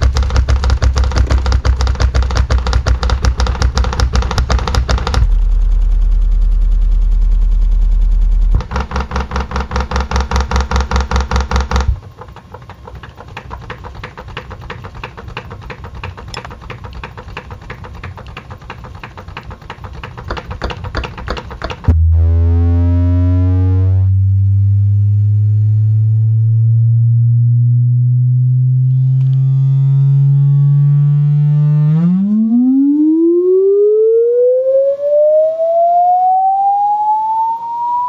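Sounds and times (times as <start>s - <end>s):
fast ticking and rattling: 0.0s - 22.0s
subwoofer deep bass: 5.0s - 8.9s, 21.9s - 32.4s.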